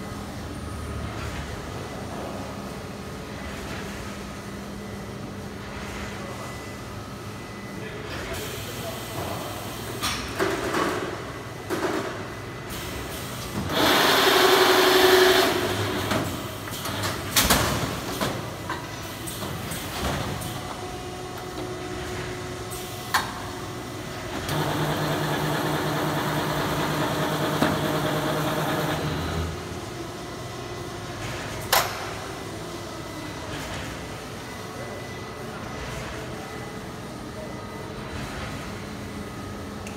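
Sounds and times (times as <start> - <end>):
steady motor hum: 23.8 - 30.8.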